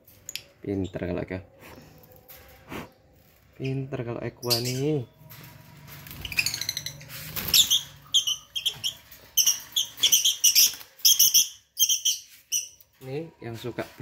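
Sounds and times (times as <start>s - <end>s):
lovebirds chirping: 3.5s - 5.3s, 6.0s - 13.0s.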